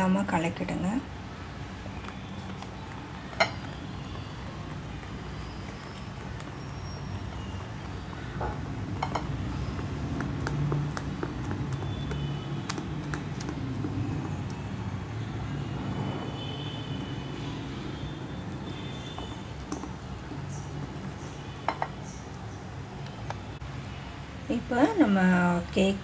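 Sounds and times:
whisk wires tapping bowl: 2.0s - 14.6s, 18.7s - 23.4s.

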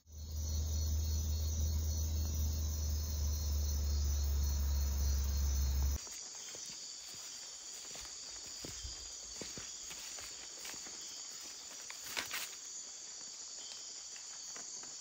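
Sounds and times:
loud steady low hum: 0.0s - 6.0s
insects chirring: 0.0s - 15.0s
faint ticks and rustles: 5.7s - 15.0s.

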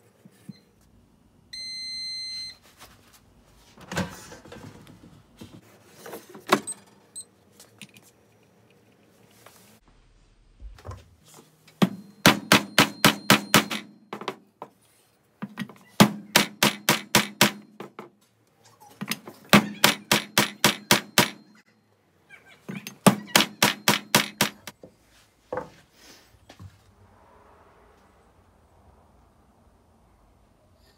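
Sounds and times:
hammer striking wooden block: 11.8s - 14.3s, 16.0s - 17.9s, 19.6s - 21.5s, 23.0s - 24.7s.

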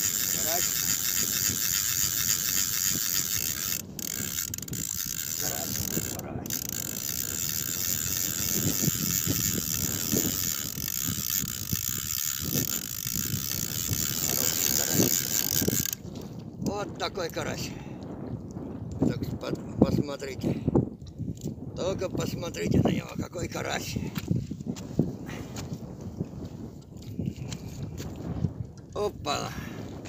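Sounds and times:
fishing reel ratcheting whir: 0.0s - 16.5s.

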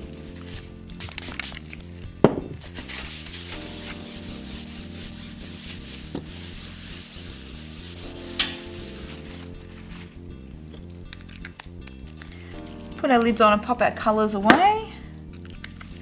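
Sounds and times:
paper towel scrubbing a surface: 2.6s - 10.2s.

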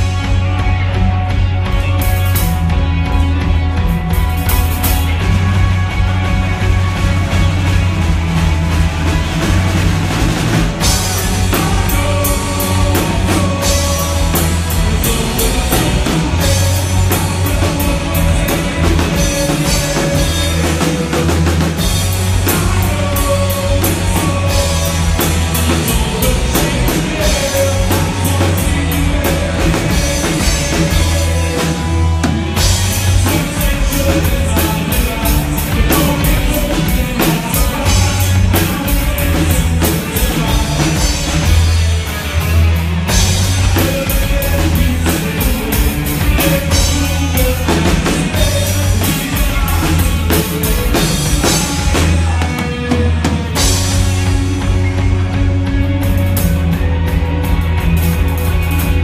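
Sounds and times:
drum kit beat: 0.0s - 59.0s
electric guitars: 0.0s - 59.0s
rock band playing live: 0.0s - 59.0s.

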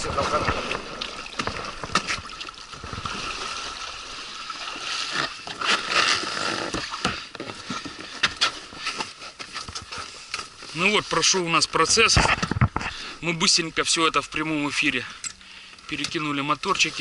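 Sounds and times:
shallow water splashing: 0.0s - 8.9s.

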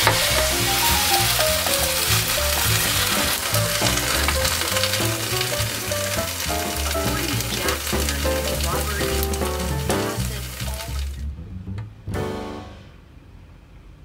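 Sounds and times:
rice sizzling in a pot: 0.0s - 11.2s
wooden spatula stirring crackles: 0.0s - 11.3s
background music: 0.0s - 13.0s.

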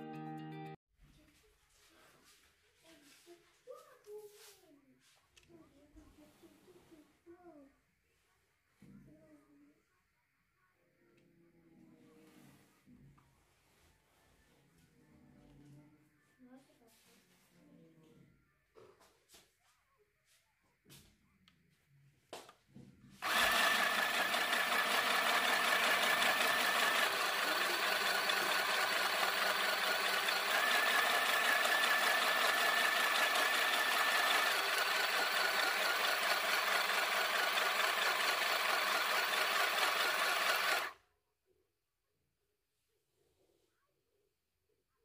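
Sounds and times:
sewing machine stitching: 23.2s - 41.0s.

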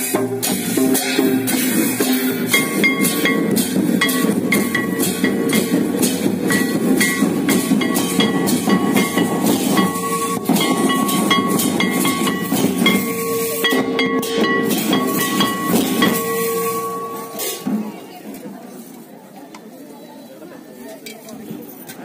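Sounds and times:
quick dense drumming: 0.0s - 18.0s
held high tone: 2.5s - 17.9s.

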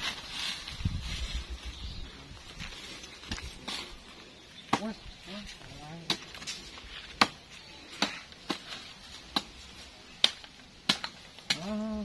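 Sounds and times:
machete chopping brush: 4.6s - 5.0s, 5.9s - 11.9s.

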